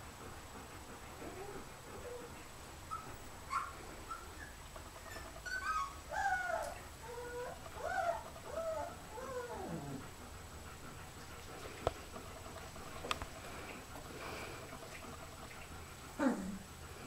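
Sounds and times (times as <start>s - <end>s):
puppy whimpering and squeaking: 2.9s - 10.0s.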